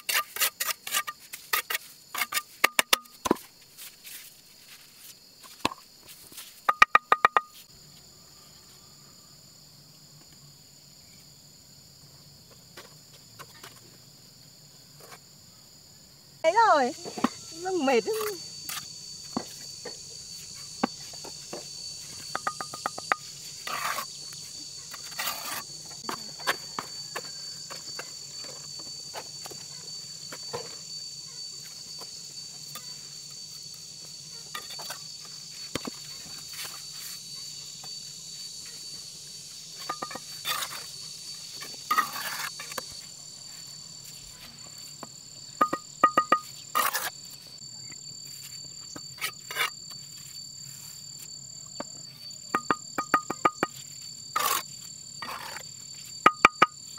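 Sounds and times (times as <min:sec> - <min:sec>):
insects trilling: 0:00.0 - 0:56.9
sharp knocks and clattering: 0:06.6 - 0:07.7, 0:20.8 - 0:23.3, 0:39.8 - 0:40.9, 0:45.0 - 0:46.6, 0:52.5 - 0:53.8, 0:56.2 - 0:56.8.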